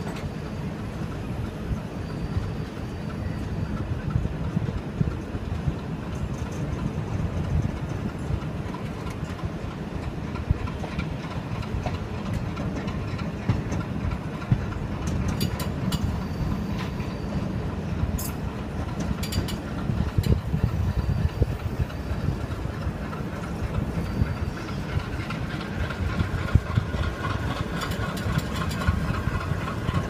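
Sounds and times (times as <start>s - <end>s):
diesel locomotive engine working hard: 0.0s - 30.0s
train coaches rumbling on rails: 0.0s - 30.0s
train wheel clicks: 0.0s - 30.0s.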